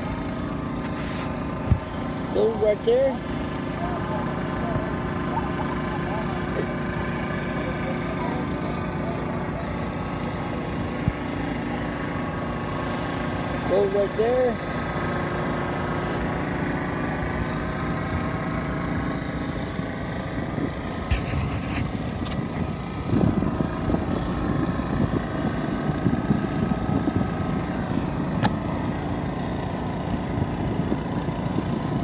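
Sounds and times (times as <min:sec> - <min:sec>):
gasoline engine running: 0:00.0 - 0:32.0.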